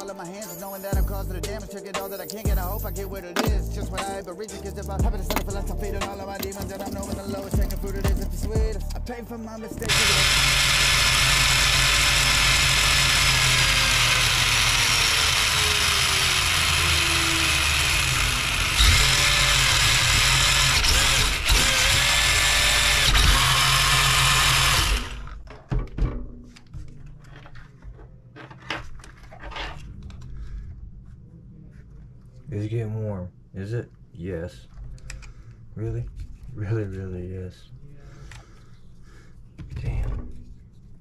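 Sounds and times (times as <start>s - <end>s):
electric motor whirring: 9.8s - 25.4s.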